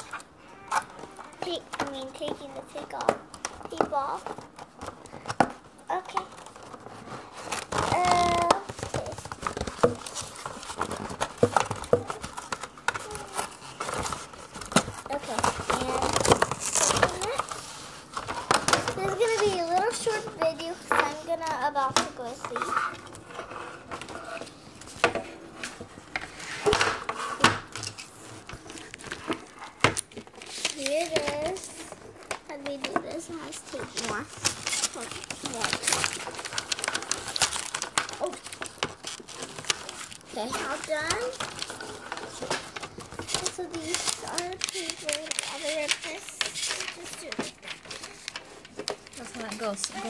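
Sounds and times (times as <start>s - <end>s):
packaging crinkling and rustling: 0.0s - 50.0s
plastic knocks and clacks: 0.0s - 50.0s
plastic clicks and knocks: 7.6s - 17.6s.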